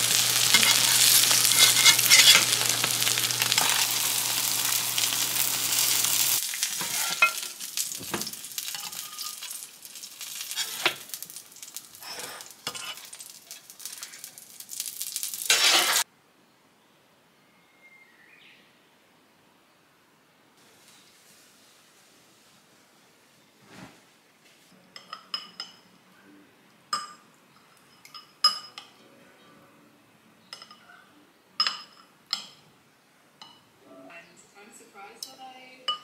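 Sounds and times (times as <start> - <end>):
utensils and bowl clicking: 0.0 - 7.7
food sizzling in hot oil: 0.0 - 16.1.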